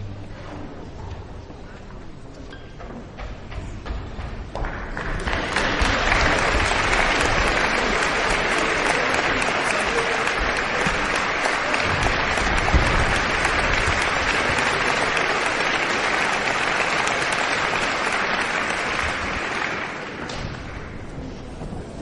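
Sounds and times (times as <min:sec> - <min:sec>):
audience applauding: 0:04.5 - 0:21.4.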